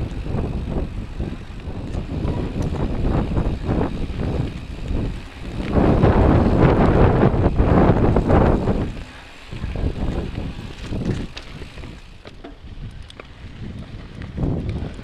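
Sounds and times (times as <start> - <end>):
bike rattling over dirt: 0.0 - 15.0
wind buffeting microphone: 0.0 - 15.0
small clicks: 10.1 - 15.0.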